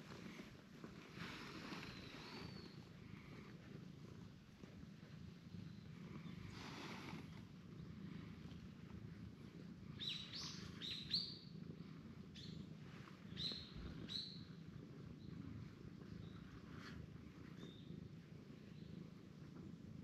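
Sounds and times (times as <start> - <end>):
small bird chirping: 1.7 - 2.9, 9.9 - 11.6, 12.3 - 16.6, 17.4 - 18.0.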